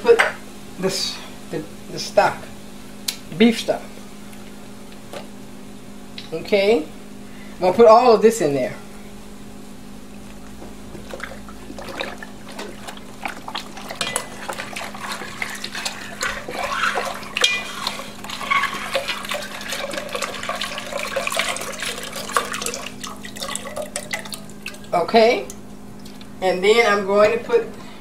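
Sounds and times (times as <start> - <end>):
liquid pouring into pot glugging: 11.0 - 25.0.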